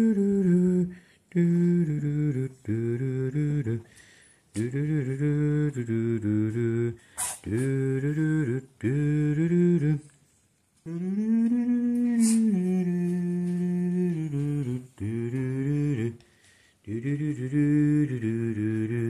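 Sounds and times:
person humming a tune: 0.0 - 3.9, 10.9 - 16.2, 16.9 - 19.0.

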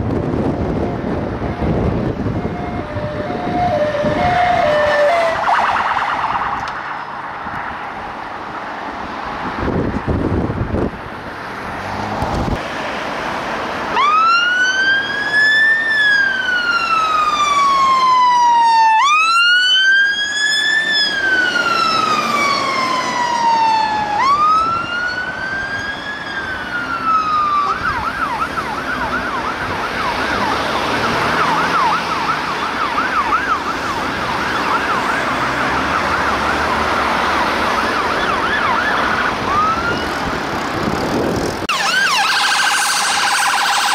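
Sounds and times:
fire engine siren wailing: 0.0 - 8.2, 13.8 - 43.9
truck rumble and road noise: 0.0 - 43.9
siren fast yelp: 0.9 - 7.0, 14.0 - 40.2, 41.7 - 43.9.

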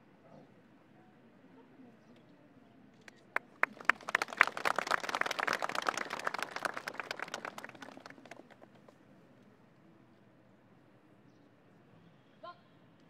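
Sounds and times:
audience applause: 3.4 - 8.9.

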